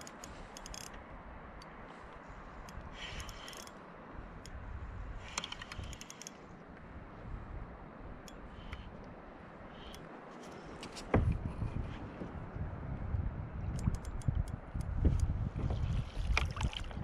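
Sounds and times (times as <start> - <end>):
fishing reel ticking and clicking: 0.0 - 1.0, 2.6 - 3.8, 5.2 - 6.4.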